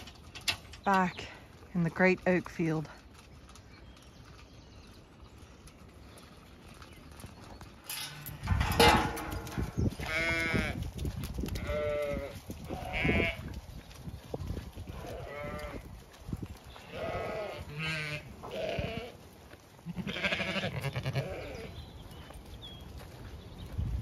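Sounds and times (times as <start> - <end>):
sheep bleating: 11.6 - 13.4, 15.0 - 15.9, 16.9 - 19.2, 19.8 - 21.7.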